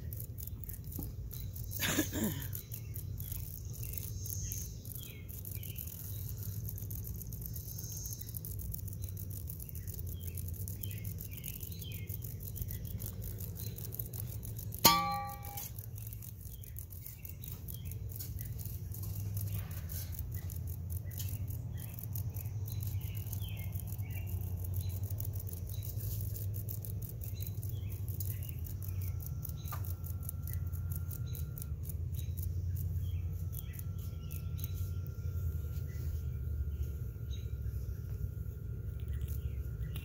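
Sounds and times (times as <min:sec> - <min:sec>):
fine crackling clicks: 0:00.0 - 0:01.8, 0:02.5 - 0:40.0
bird chirps: 0:00.0 - 0:26.2
faint steady high tone: 0:14.8 - 0:15.8.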